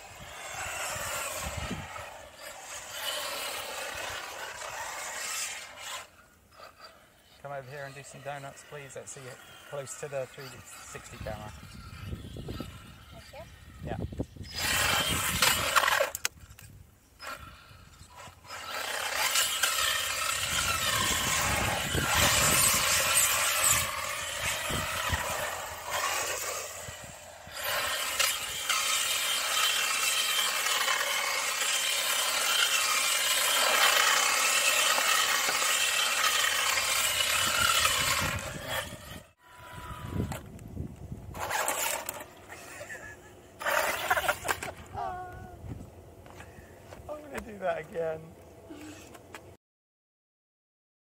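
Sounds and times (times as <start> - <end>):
rc car motor whirring: 0.0 - 45.2
tyres scrabbling over ground: 18.6 - 39.3.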